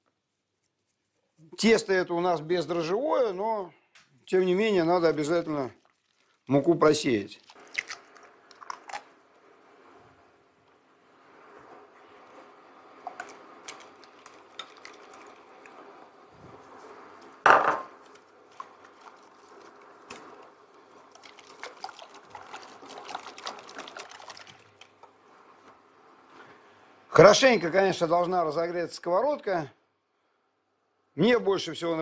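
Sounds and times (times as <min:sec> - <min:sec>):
liquid pouring: 0:04.7 - 0:09.4, 0:12.4 - 0:16.7, 0:17.3 - 0:25.2.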